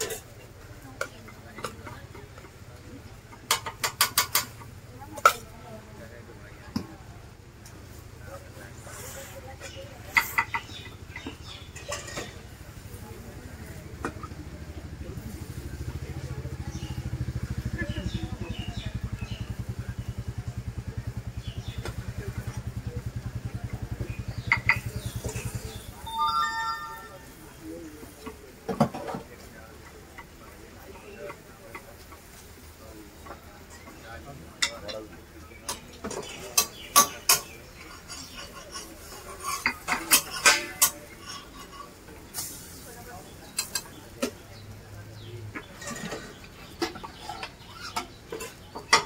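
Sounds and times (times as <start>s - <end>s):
metal spatula clinking on griddle: 35.7s - 44.0s.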